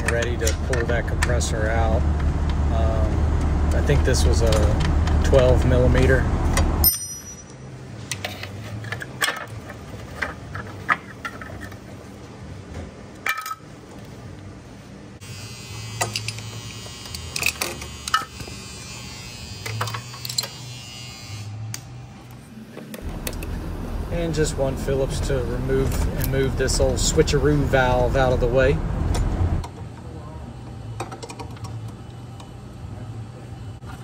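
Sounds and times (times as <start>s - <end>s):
metal tools clinking: 6.8s - 11.8s
small power tool buzzing: 15.2s - 23.5s.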